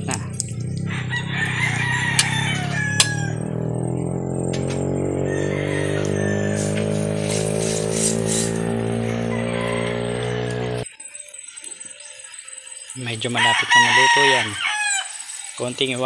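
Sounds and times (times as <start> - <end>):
rooster crowing: 0.8 - 10.8, 13.4 - 15.5
sharp clicks: 2.2 - 2.4
background music: 4.0 - 16.0.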